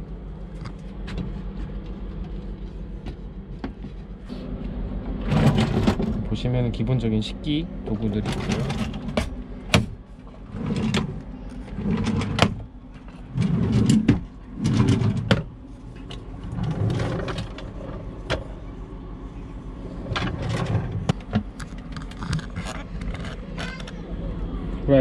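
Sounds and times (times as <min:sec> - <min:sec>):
wooden drawers sliding and knocking: 0:05.2 - 0:06.2, 0:08.2 - 0:18.6, 0:20.0 - 0:21.6.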